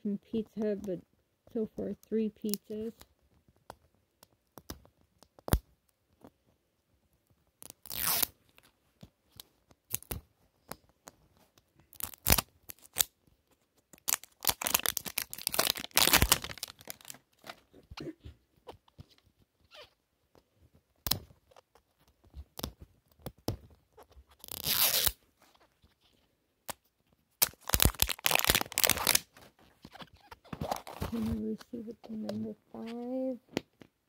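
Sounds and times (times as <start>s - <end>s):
plastic wrapper tearing: 7.6s - 8.4s, 11.9s - 13.2s, 13.9s - 17.6s, 24.3s - 25.2s, 27.4s - 31.3s.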